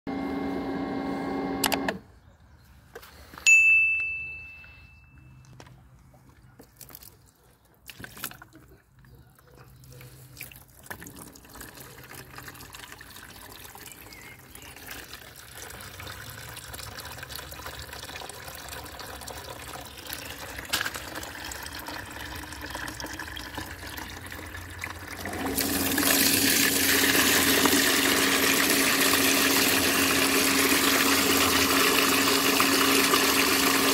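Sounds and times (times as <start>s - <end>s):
pump humming: 0.1s - 2.0s, 21.0s - 33.9s
short ringing ding: 3.5s - 5.4s
water trickling through hose: 6.6s - 9.0s, 9.6s - 33.9s
water gushing into plastic basin: 10.3s - 33.9s.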